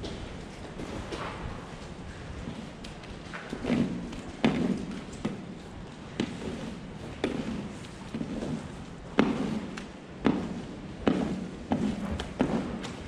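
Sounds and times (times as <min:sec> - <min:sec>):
scraper knocking and scraping: 0:03.3 - 0:13.0.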